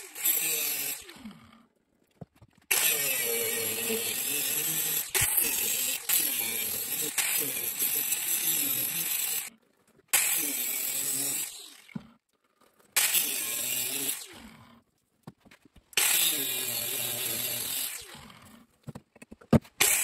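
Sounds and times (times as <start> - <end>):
angle grinder grinding steel: 0.0 - 1.1, 2.7 - 9.6, 10.2 - 12.0, 13.0 - 14.4, 16.0 - 18.6, 19.8 - 20.0.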